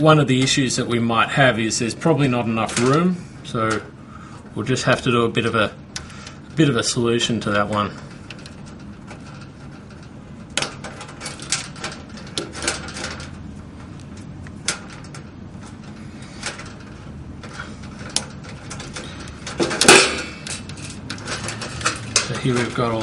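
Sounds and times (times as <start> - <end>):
wires clicking and rattling: 0.0 - 23.0
metal clatter: 6.0 - 23.0.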